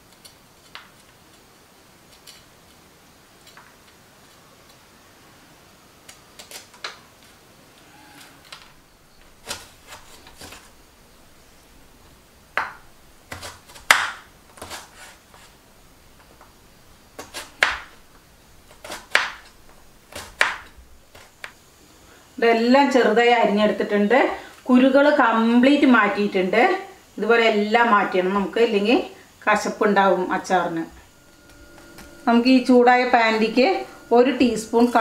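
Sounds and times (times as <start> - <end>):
knife chopping on wooden board: 12.6 - 15.0, 17.2 - 17.9, 18.8 - 19.4, 20.1 - 21.3.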